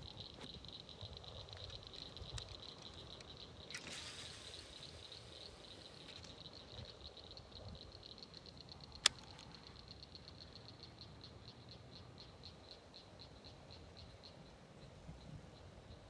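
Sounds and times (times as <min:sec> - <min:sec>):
frog calling high clicking notes: 0:00.1 - 0:14.4.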